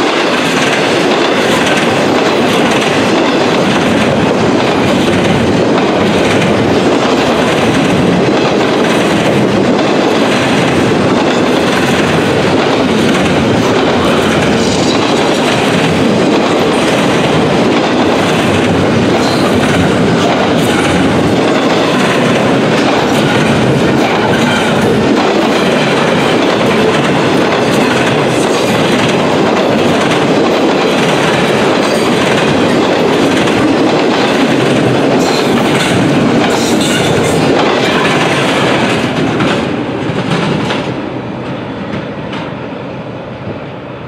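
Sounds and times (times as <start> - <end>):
freight train rumbling: 0.0 - 44.0.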